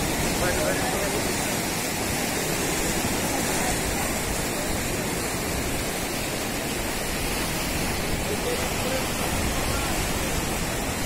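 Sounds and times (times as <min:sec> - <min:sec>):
flooded river rushing: 0:00.0 - 0:11.0.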